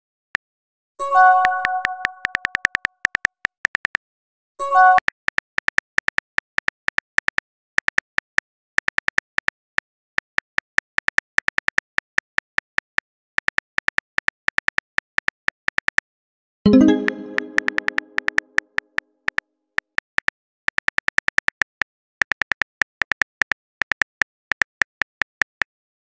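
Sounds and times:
phone keyboard clicks: 1.4s - 4.0s.

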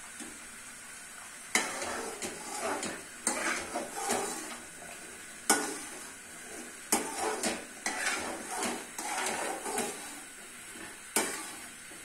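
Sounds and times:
spatula clanking on a pan: 1.5s - 4.6s, 5.4s - 10.2s, 10.8s - 12.0s
metal spatula scraping a pan: 1.5s - 12.0s.

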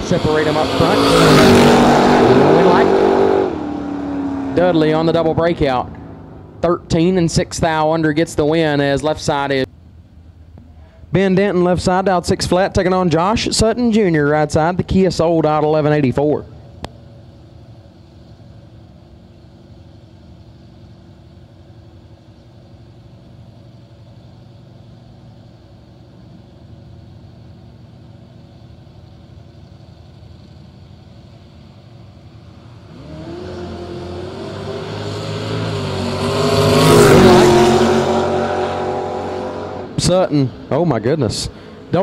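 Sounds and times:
race cars accelerating hard: 0.0s - 6.6s, 32.6s - 42.0s
race cars idling: 0.0s - 34.5s, 39.6s - 42.0s.

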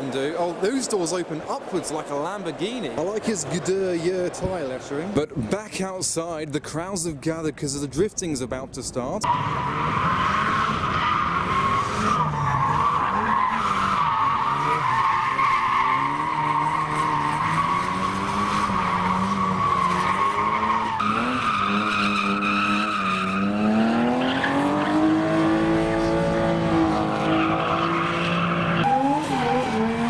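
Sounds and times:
car engines revving: 9.2s - 30.0s.

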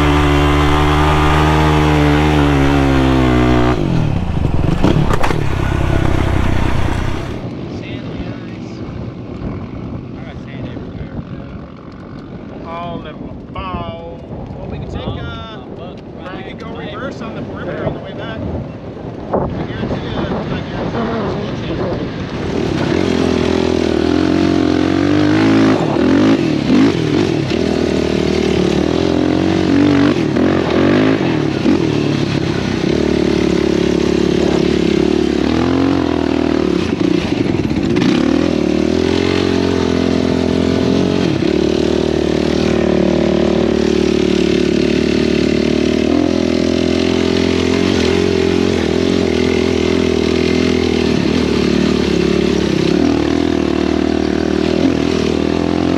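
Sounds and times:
atv engine revving: 0.0s - 7.5s, 22.3s - 55.9s.

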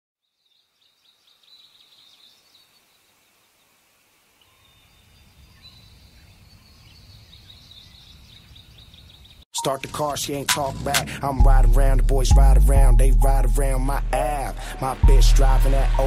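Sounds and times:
small birds chirping: 0.2s - 10.8s.

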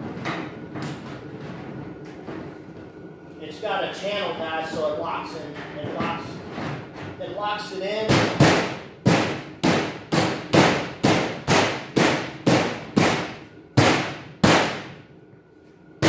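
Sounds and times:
knocks on metal cabinet panels: 8.1s - 15.0s.

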